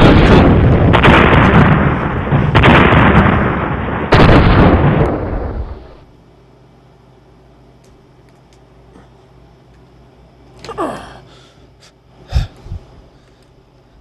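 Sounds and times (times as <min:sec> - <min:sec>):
loud explosion blasts: 0:00.0 - 0:06.0.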